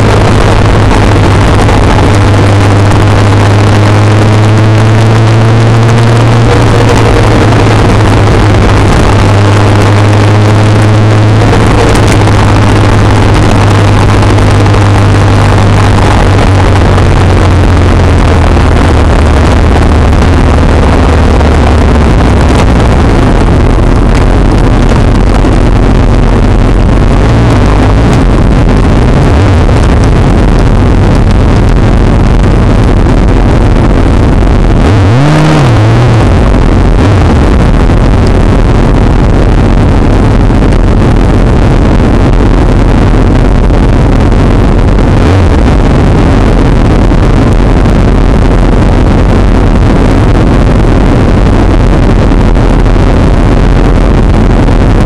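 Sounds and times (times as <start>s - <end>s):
motorcycle engine humming: 0.0s - 52.5s
engine revving: 0.0s - 55.0s
wind rushing on microphone: 0.0s - 55.0s.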